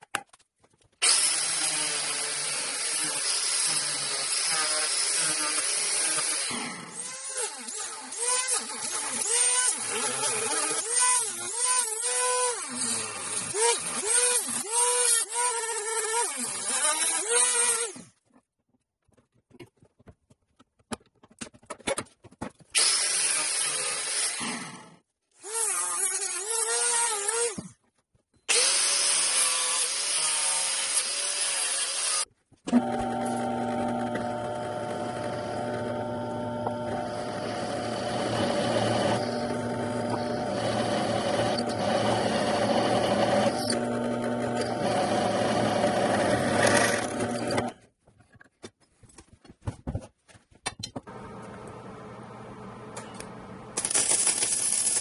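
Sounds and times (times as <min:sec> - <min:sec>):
angle grinder cutting pipe: 0:01.0 - 0:18.0, 0:28.5 - 0:47.8, 0:53.2 - 0:55.0
drill press drilling metal: 0:32.7 - 0:47.7
rotary tool grinding plastic pipe: 0:32.7 - 0:47.8.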